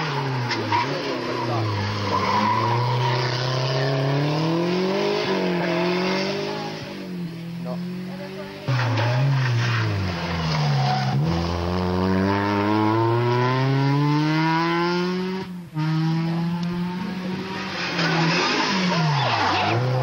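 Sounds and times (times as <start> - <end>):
rally car engine accelerating: 0.0 - 20.0
tyres on gravel: 8.3 - 11.3.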